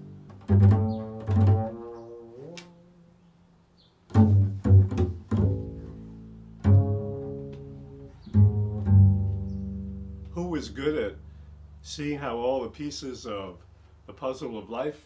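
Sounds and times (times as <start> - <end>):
double bass plucked notes: 0.0 - 3.2, 4.1 - 12.2.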